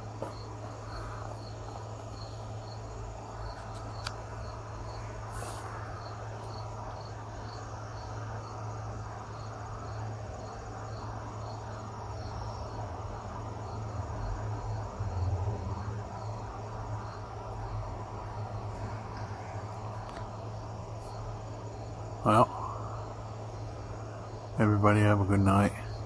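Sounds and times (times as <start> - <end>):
cricket chirping: 0.0 - 26.0.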